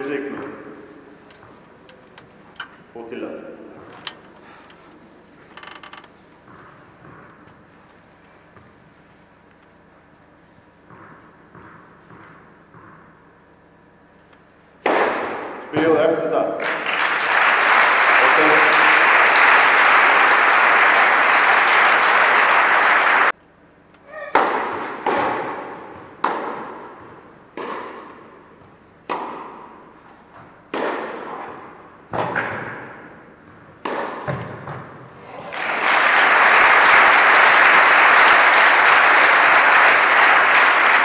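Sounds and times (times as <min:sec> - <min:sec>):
racket hitting tennis ball: 0:06.4 - 0:07.7, 0:10.8 - 0:13.3, 0:14.8 - 0:15.8, 0:24.0 - 0:35.1
spectators applauding: 0:16.5 - 0:23.3, 0:35.3 - 0:41.0.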